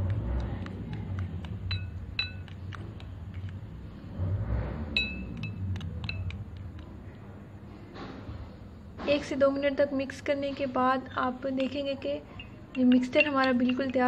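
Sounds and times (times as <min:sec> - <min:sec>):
fork clinking against glass bowl: 0:01.7 - 0:02.8, 0:05.0 - 0:06.4, 0:11.6 - 0:14.0.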